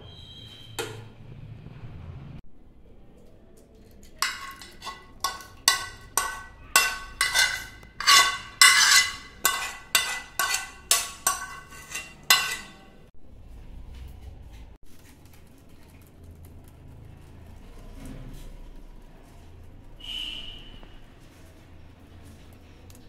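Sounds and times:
metal spoon scraping steel pan: 4.2s - 13.0s.

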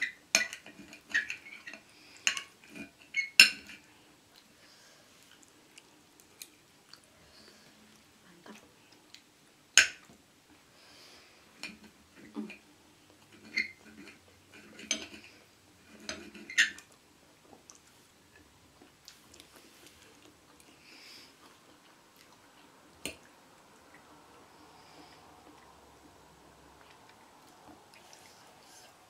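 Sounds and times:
quiet chewing: 3.7s - 29.0s
cutlery clinking on a plate: 13.3s - 15.3s.

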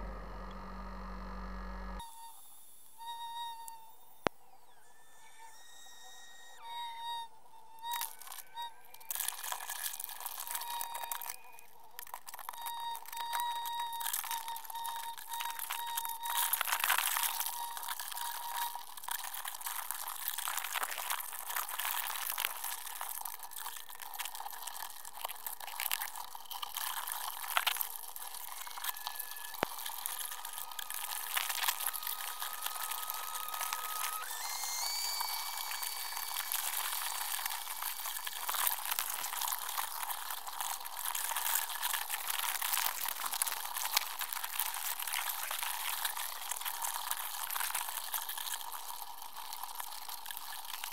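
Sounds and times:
underwater crackle and hiss: 7.9s - 50.9s
thin steady tones: 26.0s - 49.2s.

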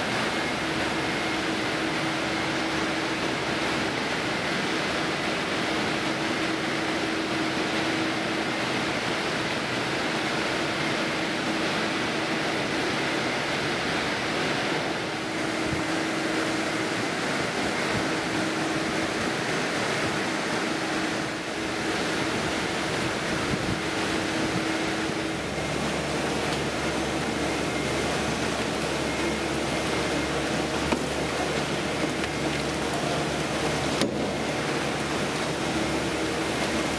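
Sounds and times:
mixer cooker running: 10.1s - 36.9s.

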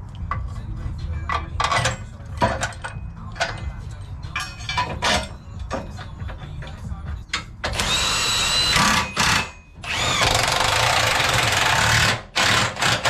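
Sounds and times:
impact wrench whine: 7.6s - 13.0s.

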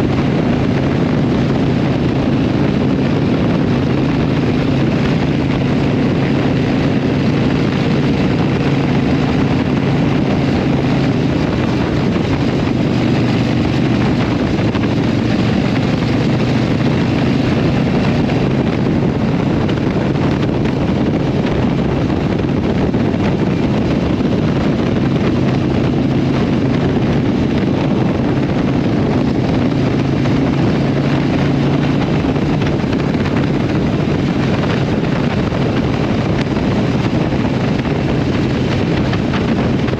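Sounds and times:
motorcycle engine running steadily: 0.0s - 39.9s
wind rushing over microphone: 0.0s - 39.9s.

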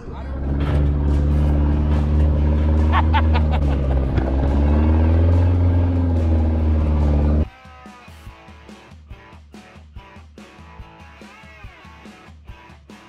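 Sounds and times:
pickup truck engine running: 0.0s - 7.4s.

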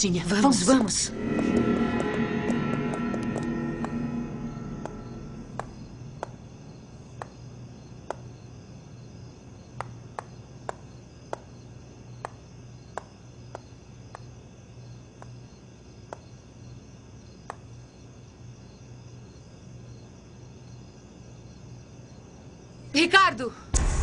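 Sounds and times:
steady low hum: 0.0s - 8.0s.

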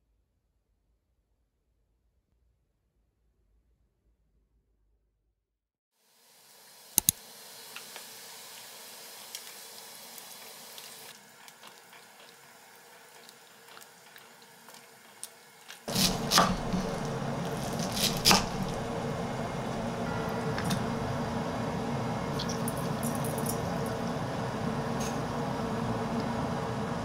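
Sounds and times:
water boiling in a saucepan: 6.0s - 21.6s, 22.2s - 27.0s
water rushing through colander: 6.3s - 21.1s, 22.3s - 25.2s.

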